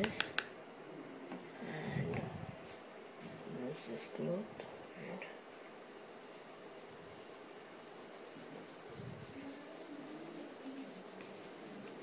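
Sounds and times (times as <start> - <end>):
cloth rubbing phone screen: 5.9 - 12.0.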